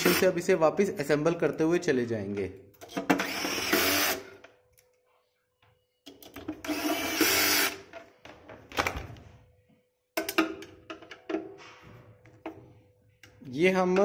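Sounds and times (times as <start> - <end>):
electric screwdriver whirring: 3.2 - 4.3, 6.6 - 7.8
metal housing clicks and knocks: 10.2 - 11.6.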